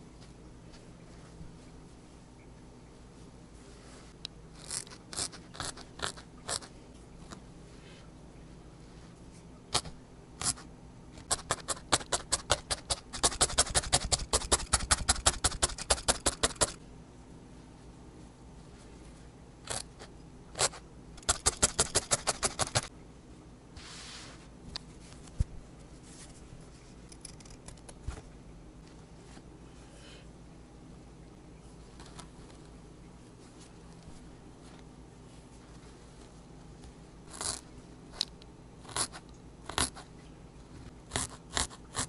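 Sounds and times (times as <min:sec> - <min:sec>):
felting needle stabbing wool: 0:11.2 - 0:16.8, 0:20.6 - 0:22.8.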